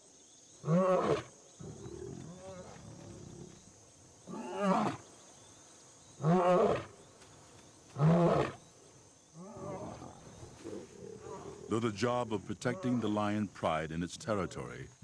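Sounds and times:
lion grunts: 0:09.4 - 0:11.7
lion roaring: 0:09.4 - 0:11.7.

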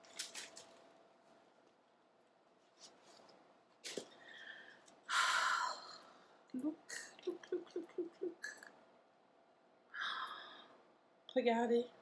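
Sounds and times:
plastic rustling: 0:00.0 - 0:01.8.

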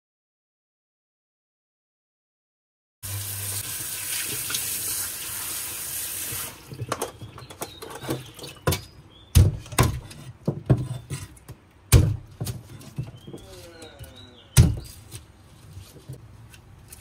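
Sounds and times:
tap water running onto board: 0:03.1 - 0:07.1
cleaver chopping on board: 0:11.9 - 0:12.6, 0:14.6 - 0:15.0.

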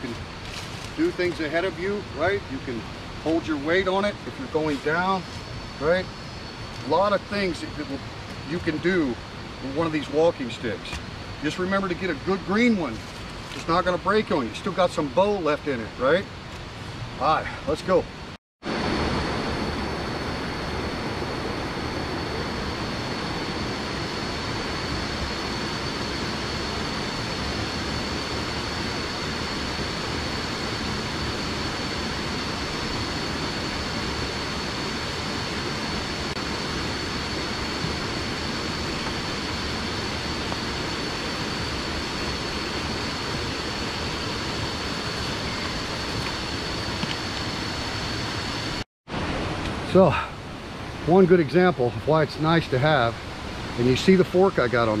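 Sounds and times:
constant high-pitched whine: 0:00.0 - 0:55.0
even rushing noise: 0:17.1 - 0:55.0.

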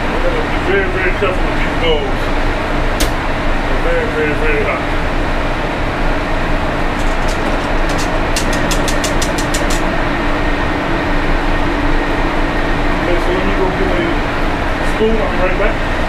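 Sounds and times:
kitchen ventilation rushing: 0:00.0 - 0:16.0
whisk clicking against metal pot: 0:07.0 - 0:09.8.

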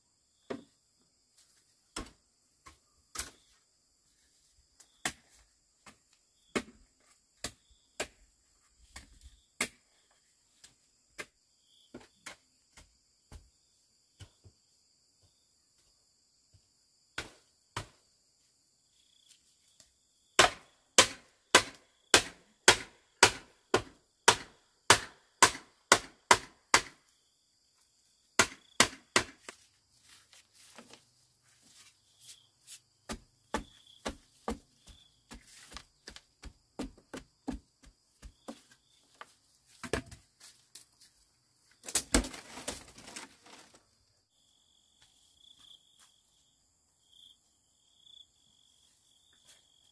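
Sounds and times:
blade chopping into wood: 0:20.4 - 0:27.0, 0:28.4 - 0:29.5
crickets chirring: 0:27.0 - 0:49.9.

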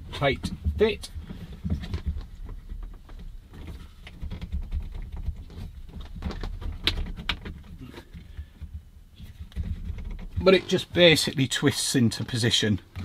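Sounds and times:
plastic mirror clicking and creaking: 0:01.5 - 0:10.9.

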